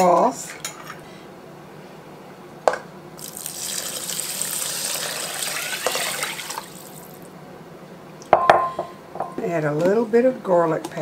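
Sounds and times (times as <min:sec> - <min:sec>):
liquid pouring into metal pot: 0:03.2 - 0:07.3.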